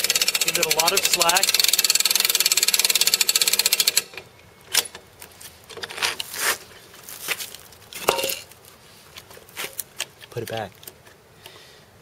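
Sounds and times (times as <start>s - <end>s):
rope winch ratcheting clicks: 0.0s - 5.0s.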